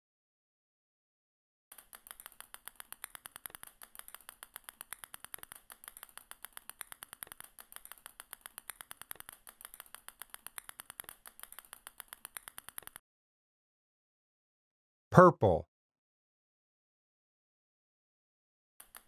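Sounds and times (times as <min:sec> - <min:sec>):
small balls clicking onto pile: 0:01.7 - 0:13.0.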